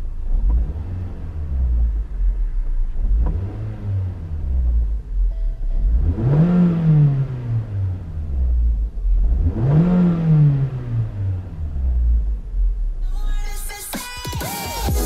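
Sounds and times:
car engine revving: 0:00.0 - 0:13.9.

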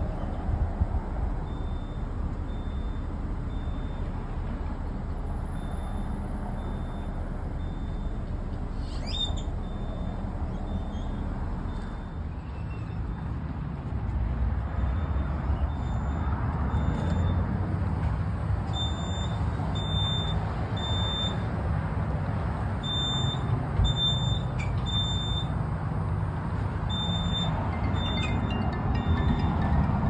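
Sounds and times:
fire alarm beeping: 0:22.8 - 0:25.5, 0:26.9 - 0:28.2.

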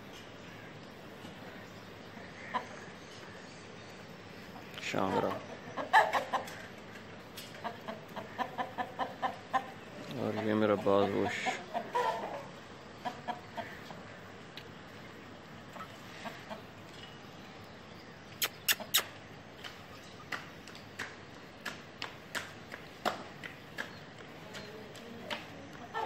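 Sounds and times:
chickens clucking: 0:02.2 - 0:03.3, 0:04.5 - 0:14.5, 0:15.5 - 0:17.0, 0:23.8 - 0:26.0
sharp clicks: 0:18.3 - 0:25.4.

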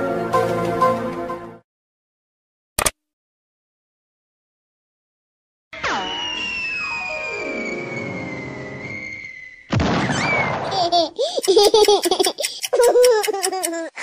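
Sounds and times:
falling whistle tone: 0:05.8 - 0:10.5
baby giggling: 0:10.6 - 0:14.0.

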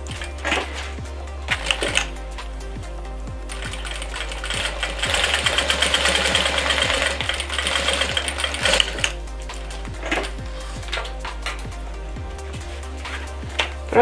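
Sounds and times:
sewing machine stitching: 0:03.5 - 0:09.1.

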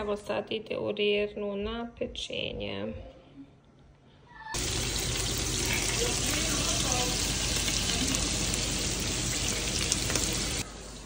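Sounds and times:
sausages sizzling in oil: 0:04.6 - 0:11.0.

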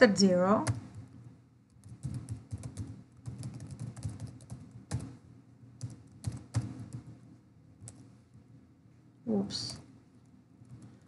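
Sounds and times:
computer keyboard typing: 0:00.6 - 0:05.2, 0:05.8 - 0:07.1, 0:07.8 - 0:08.0.

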